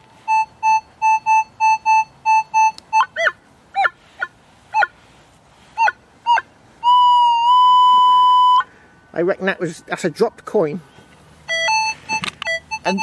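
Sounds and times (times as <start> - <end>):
metal detector steady tone: 0.0 - 3.3, 11.5 - 13.0
metal detector beeps: 0.2 - 3.3, 11.5 - 13.0
metal detector chirps: 0.2 - 3.9, 11.5 - 13.0.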